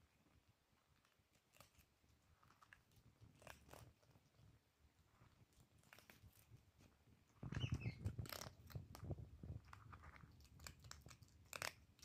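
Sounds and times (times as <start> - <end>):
cat crunching dry kibble: 0.8 - 7.5, 8.1 - 12.0.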